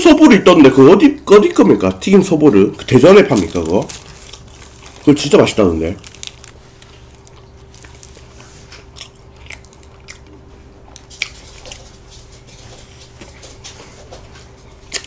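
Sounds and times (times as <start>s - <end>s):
faint steady hum: 0.0s - 15.0s
bread being torn and bitten: 1.1s - 11.8s
chewing with mouth clicks: 6.0s - 15.0s.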